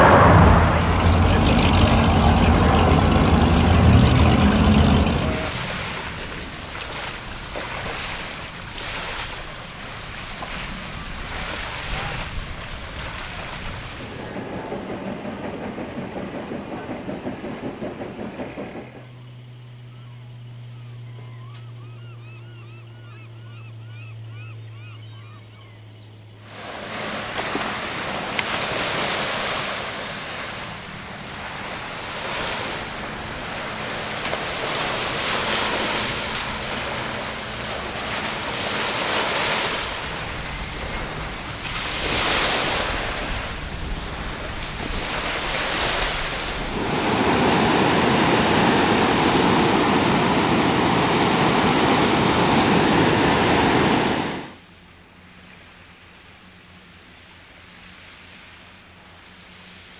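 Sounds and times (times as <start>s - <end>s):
low steady hum: 0.0s - 11.4s
surf breaking on rocks: 0.0s - 19.1s, 26.4s - 54.6s
waves washing in: 0.0s - 19.7s, 26.3s - 59.9s.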